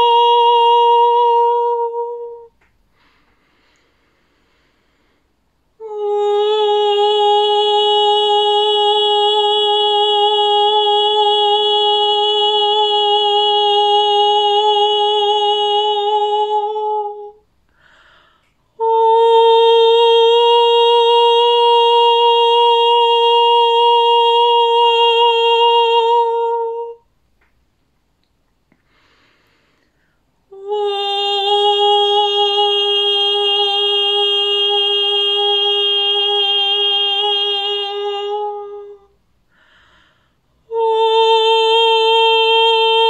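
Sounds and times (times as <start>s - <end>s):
woman singing sustained notes: 0.0s - 2.6s, 5.8s - 18.0s, 18.7s - 27.1s, 30.4s - 40.1s, 40.7s - 43.0s
breath: 2.9s - 5.6s, 17.7s - 18.7s, 28.8s - 30.4s, 39.5s - 40.6s.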